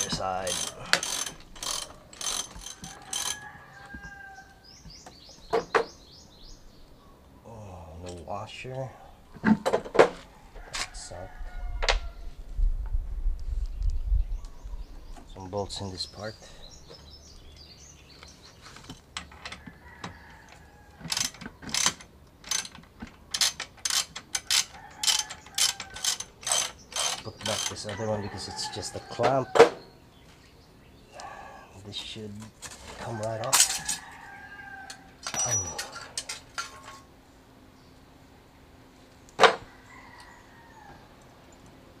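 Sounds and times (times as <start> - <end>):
ratchet wrench clicking: 0.0 - 3.4, 21.1 - 27.9
sharp metal clicks: 0.0 - 3.4, 21.1 - 28.0.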